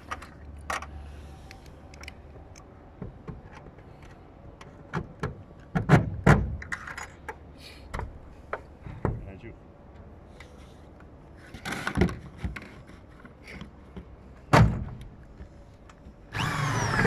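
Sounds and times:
drill driving screw into metal: 0:16.3 - 0:17.0.

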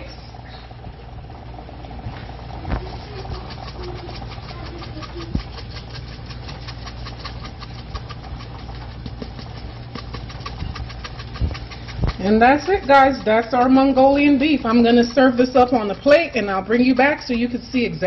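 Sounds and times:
low steady hum: 0:00.0 - 0:18.0
food crackling in a hot pan: 0:02.3 - 0:16.4.

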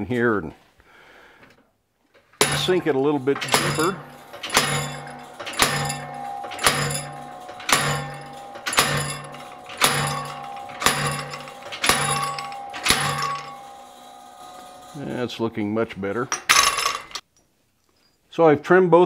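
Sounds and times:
hammer blows on hot steel: 0:02.4 - 0:16.0.

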